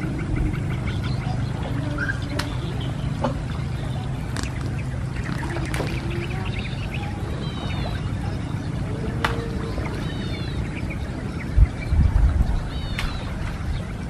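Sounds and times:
faint chirping animal calls: 0.0 - 11.7
steady low rumble: 0.0 - 14.0.

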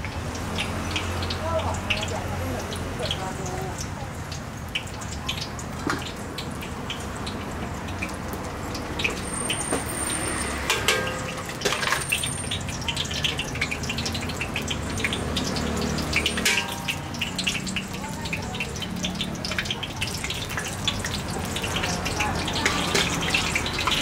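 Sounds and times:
oil sizzling in a deep fryer: 0.0 - 24.0
metal utensils clicking: 9.0 - 24.0.

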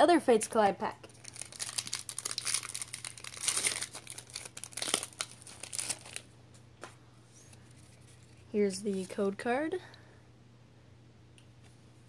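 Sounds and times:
foil wrapper crinkling: 1.1 - 6.3.

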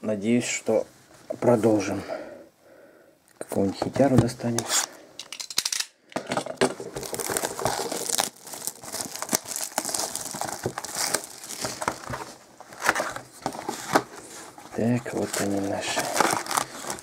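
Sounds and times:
plastic shrink wrap tearing: 6.8 - 12.1, 15.0 - 17.0.

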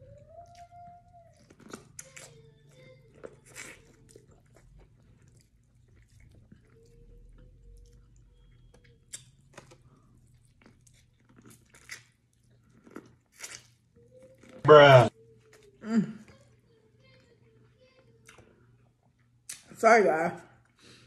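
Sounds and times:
chewing corn on the cob: 0.0 - 14.6.

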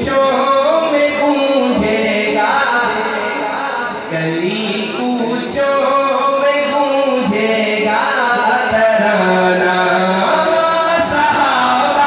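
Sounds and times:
man singing into a microphone: 0.0 - 12.0.

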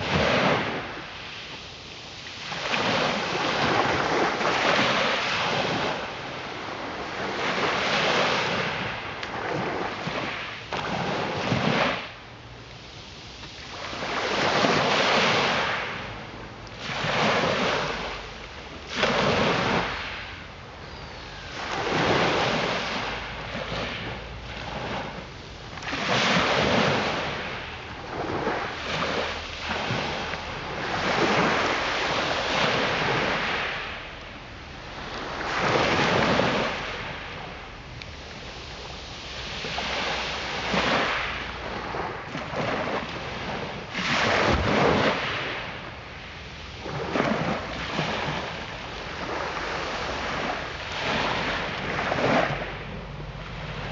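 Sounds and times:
waves washing over shingle: 0.0 - 53.9.

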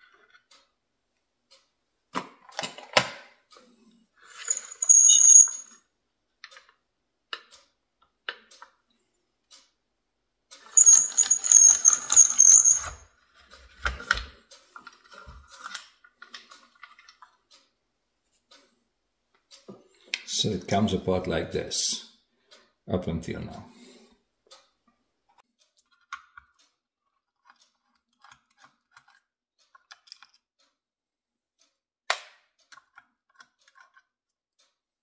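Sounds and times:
metal parts clicking and tapping: 4.4 - 5.8, 10.5 - 17.7, 25.7 - 30.8, 32.1 - 34.8.

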